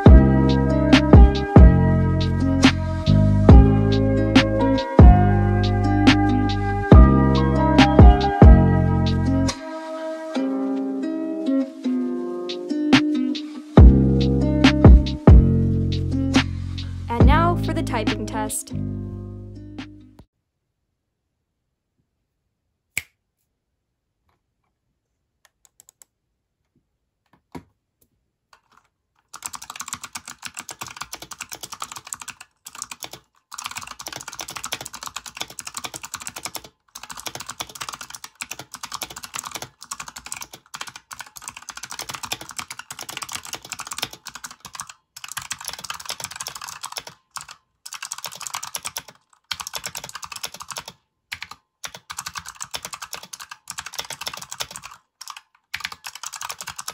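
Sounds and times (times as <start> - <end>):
keyboard typing: 25.5 - 26.1, 28.6 - 56.9.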